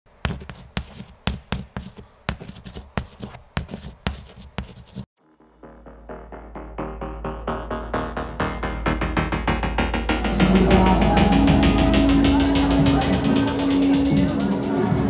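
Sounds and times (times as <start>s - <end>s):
pen scribbling: 0.2s - 5.1s
electronic music sting: 5.2s - 15.0s.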